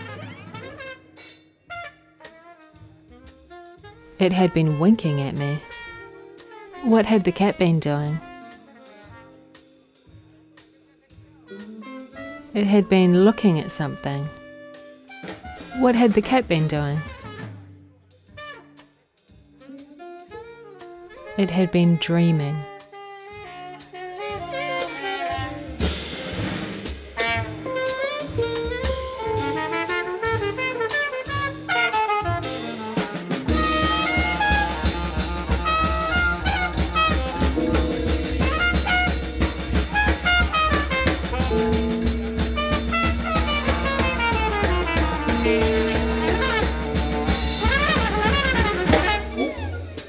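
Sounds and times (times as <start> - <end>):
saxophone: 0.0 - 9.8, 11.4 - 15.9, 16.5 - 26.4, 27.2 - 50.0
bass: 15.6 - 18.6, 25.3 - 50.0
drum kit: 23.3 - 50.0.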